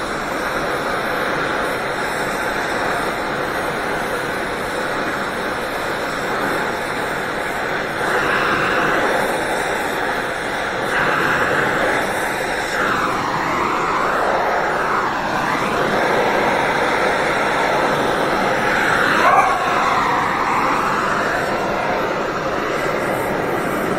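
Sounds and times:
gas torch flame hissing: 0.0 - 23.9.

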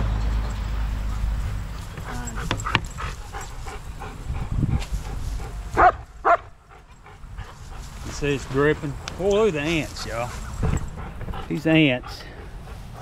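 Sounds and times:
dog yipping: 5.8 - 6.5.

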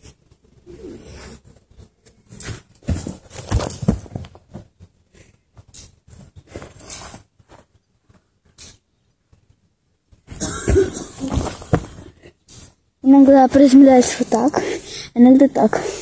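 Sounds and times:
hands and feet thudding on ground: 2.4 - 4.7, 10.3 - 12.2.

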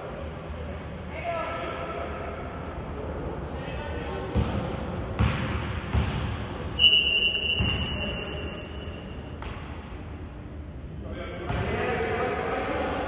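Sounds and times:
basketball bouncing on court: 4.3 - 6.5, 7.6 - 8.1, 9.2 - 9.8, 11.4 - 11.8
referee's whistle blast: 6.8 - 9.3.

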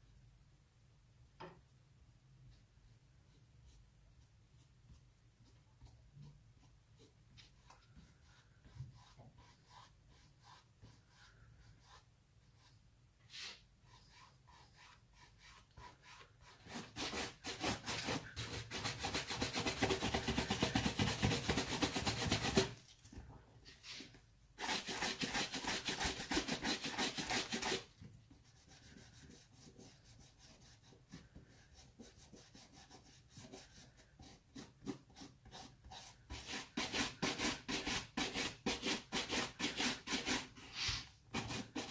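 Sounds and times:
brush sweeping over shoe: 3.2 - 18.3, 23.6 - 27.9, 40.2 - 41.9.

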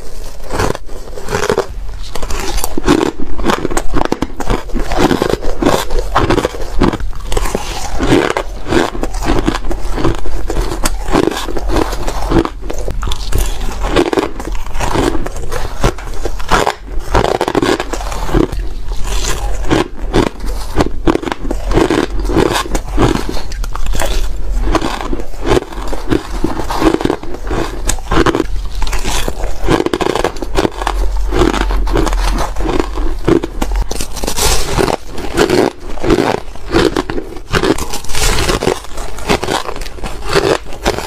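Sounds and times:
crushed ice crunching: 0.0 - 41.0.

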